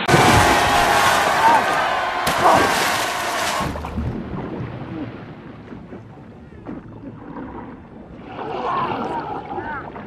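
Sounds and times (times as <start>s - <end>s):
person splashing into water: 0.1s - 4.0s.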